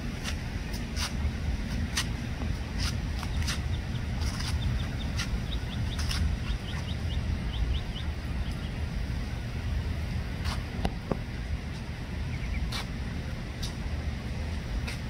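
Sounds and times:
low background rumble: 0:00.0 - 0:15.0
ducklings peeping: 0:01.6 - 0:15.0.

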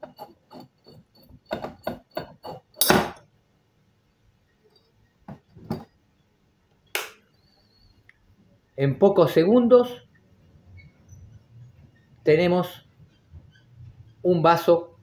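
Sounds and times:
glass bottle clicking and rubbing: 0:00.0 - 0:03.2
glass pieces knocking: 0:00.0 - 0:03.2
glass bottle breaking knock: 0:02.8 - 0:03.2.

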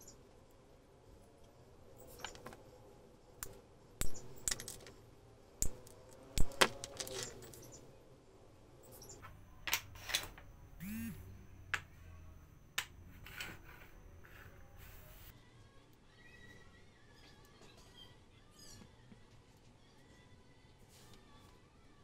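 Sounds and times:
wooden pieces clattering on mat: 0:02.1 - 0:02.6, 0:04.3 - 0:05.0, 0:05.7 - 0:07.6.

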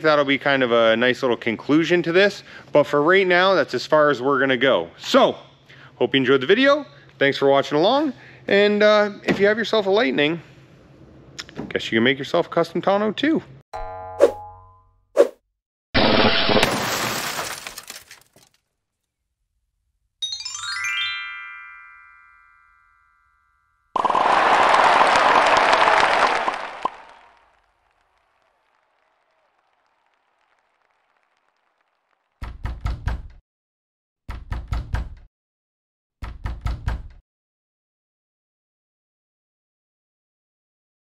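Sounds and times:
glass shattering crash: 0:16.0 - 0:18.6
rising run of chime notes: 0:20.2 - 0:23.6.

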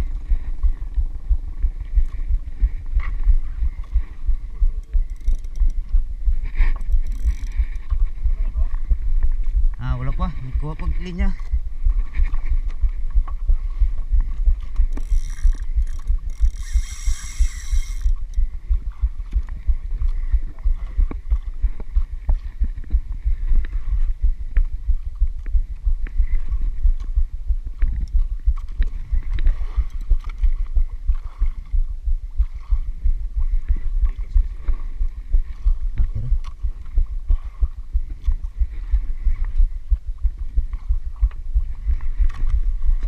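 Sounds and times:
boat engine throbbing: 0:00.0 - 0:25.0
high-pitched buzz: 0:15.3 - 0:18.2.

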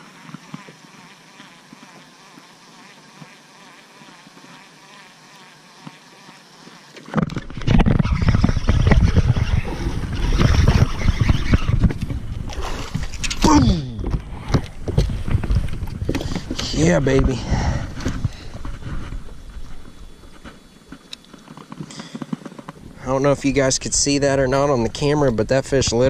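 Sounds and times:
fishing reel ticking: 0:04.9 - 0:13.5
rumbling rustling on microphone: 0:07.0 - 0:26.0.

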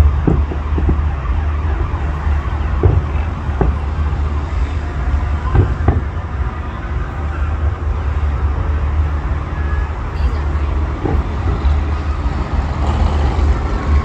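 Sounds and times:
distant firework bangs: 0:00.0 - 0:06.7
city traffic noise: 0:00.0 - 0:14.0.

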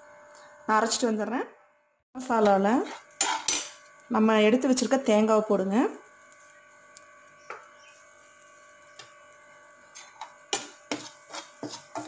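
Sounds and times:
metal spatula scraping a pan: 0:02.4 - 0:03.8, 0:09.8 - 0:12.0.

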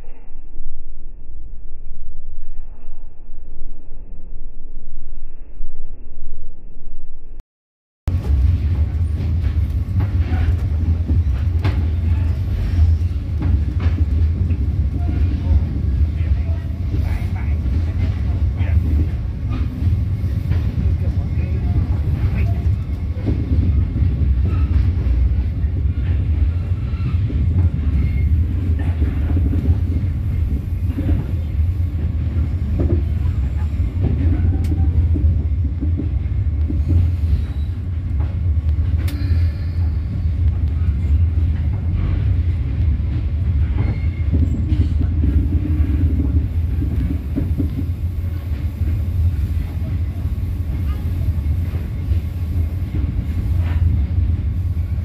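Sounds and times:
train rumbling on track: 0:08.1 - 0:55.0
sharp clicks of train wheels: 0:38.1 - 0:39.6.

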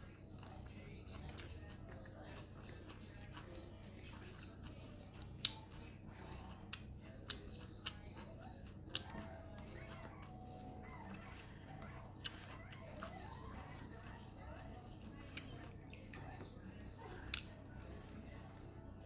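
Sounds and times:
crispy crepe crackling: 0:00.0 - 0:19.0.

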